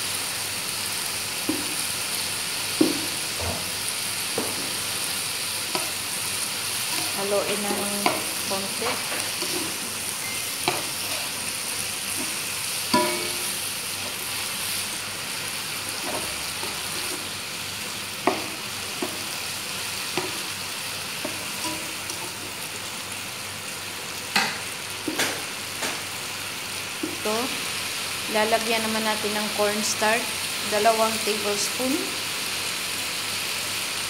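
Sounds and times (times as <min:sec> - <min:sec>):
chicken sizzling in a frying pan: 0:00.0 - 0:34.0
spatula scraping and knocking pan: 0:06.8 - 0:11.4, 0:12.1 - 0:14.4, 0:16.0 - 0:17.4, 0:18.2 - 0:20.6, 0:21.2 - 0:22.6.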